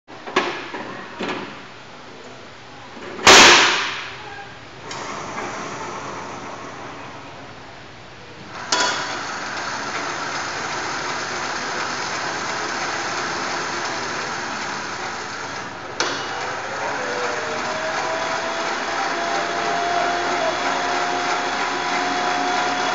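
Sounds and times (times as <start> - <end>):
drilling rig machine noise: 8.5 - 22.9
rising whine: 16.2 - 22.9.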